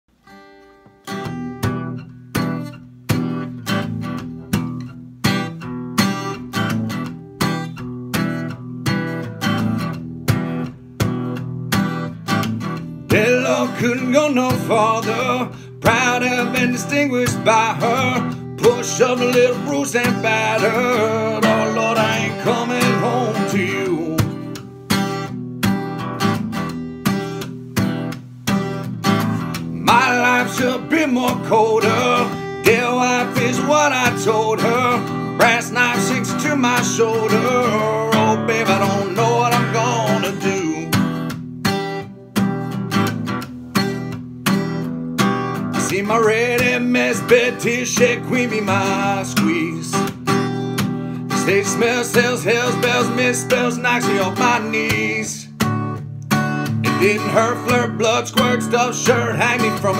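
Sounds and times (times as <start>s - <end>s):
acoustic guitar strumming: 0.1s - 59.9s
person singing: 13.1s - 24.5s, 29.7s - 41.0s, 45.8s - 50.1s, 51.2s - 55.5s, 56.8s - 59.9s.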